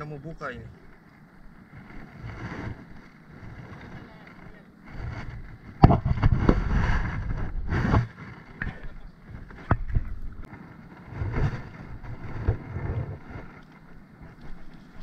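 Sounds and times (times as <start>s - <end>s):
hands knocking and rubbing camera: 5.7s - 8.8s.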